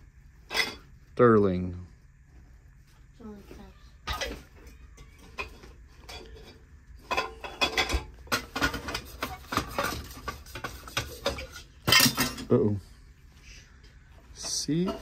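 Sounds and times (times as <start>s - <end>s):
metal objects clinking and clattering: 0.5s - 0.9s, 4.1s - 12.6s.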